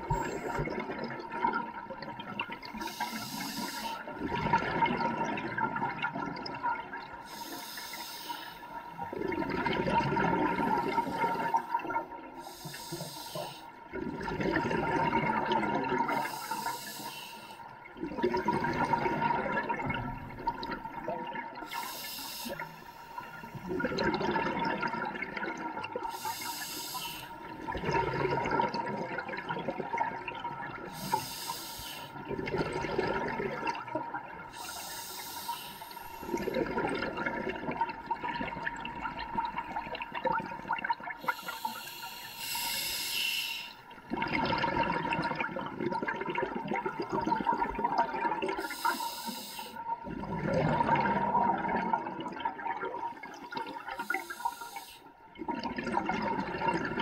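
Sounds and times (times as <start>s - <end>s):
exhaled air bubbling: 0.0s - 57.0s
regulator hissing inhale: 2.8s - 4.1s, 7.3s - 9.0s, 10.6s - 11.6s, 12.4s - 13.8s, 16.1s - 17.6s, 21.6s - 23.7s, 26.1s - 27.4s, 30.9s - 32.2s, 34.5s - 36.6s, 41.2s - 43.8s, 48.6s - 49.8s, 53.9s - 55.2s.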